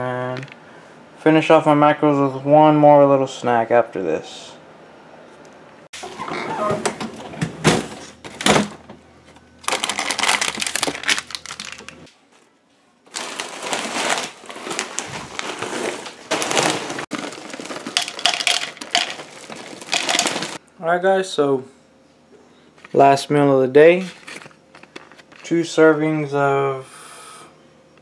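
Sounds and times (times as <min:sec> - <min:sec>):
food packaging crinkling: 0:09.6 - 0:12.1, 0:13.1 - 0:20.6.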